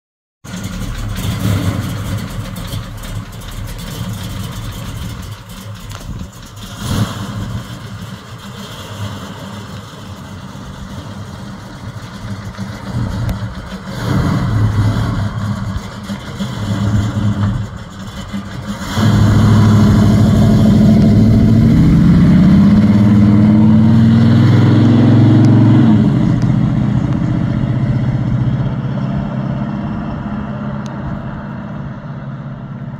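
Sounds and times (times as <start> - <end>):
car engine idling: 0.4 - 23.5
car accelerating away: 0.5 - 32.9.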